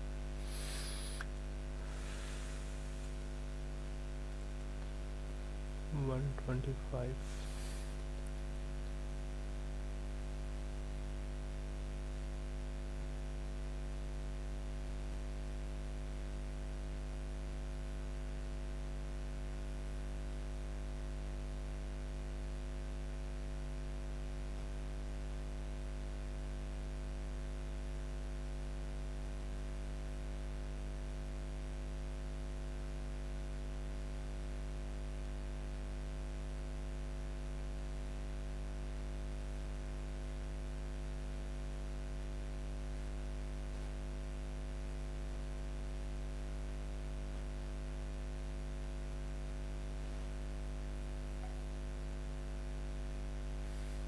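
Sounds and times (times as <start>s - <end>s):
electrical hum with tones: 0.0s - 54.0s
faint even hiss: 0.3s - 3.5s, 6.0s - 8.1s, 53.6s - 54.0s.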